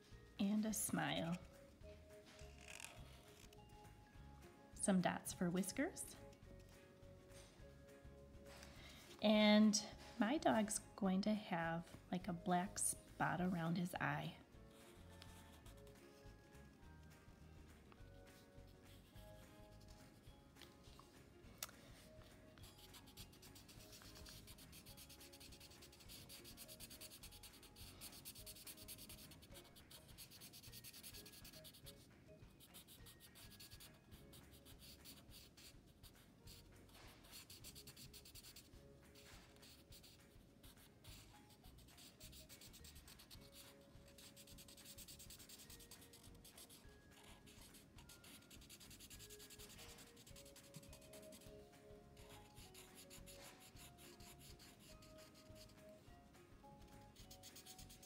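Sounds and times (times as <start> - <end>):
marker scratching on paper: 14.7 - 16.4, 21.9 - 51.5, 52.2 - 55.8, 57.1 - 58.0.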